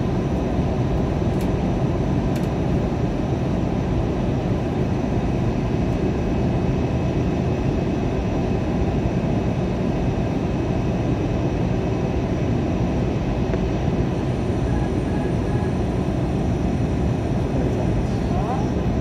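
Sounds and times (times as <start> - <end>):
airliner cabin roar: 0.0 - 19.0
faint high whine: 13.0 - 19.0.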